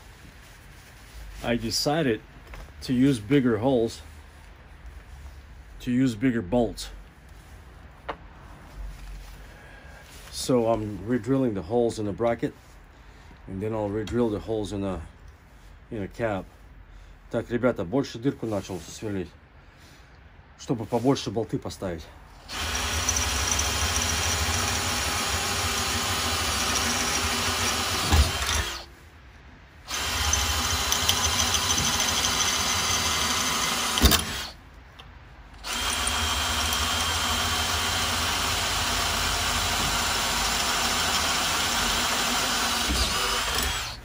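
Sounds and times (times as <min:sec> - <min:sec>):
power drill boring steel: 0:22.5 - 0:28.9, 0:29.9 - 0:34.6, 0:35.6 - 0:44.0.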